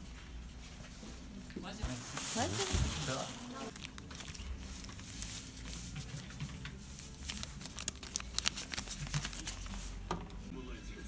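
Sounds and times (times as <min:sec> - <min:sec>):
paper banknotes rustling: 0:01.9 - 0:10.4
small crackles and clicks: 0:07.2 - 0:09.6.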